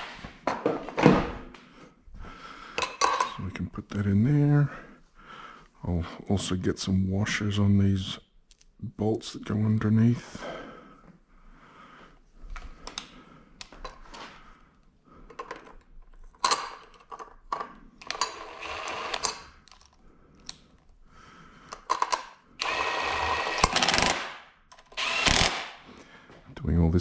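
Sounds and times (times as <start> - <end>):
cordless driver running bolts: 18.0 - 19.4, 21.9 - 25.7
bolts and washers clicking: 21.7 - 22.8.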